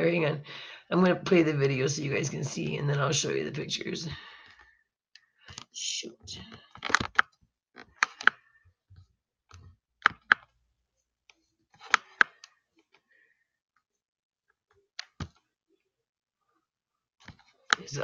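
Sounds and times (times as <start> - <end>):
computer mouse clicking: 9.5 - 10.4, 11.8 - 12.5.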